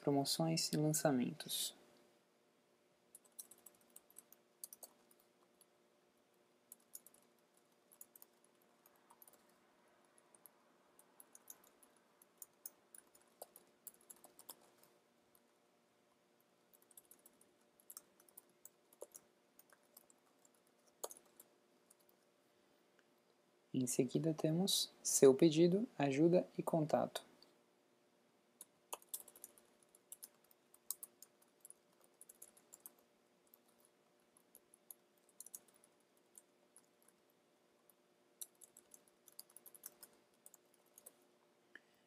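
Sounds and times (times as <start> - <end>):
low steady hum: 0.0 - 42.0
keyboard typing: 3.1 - 5.7, 6.7 - 15.5, 16.7 - 22.2, 28.6 - 41.2.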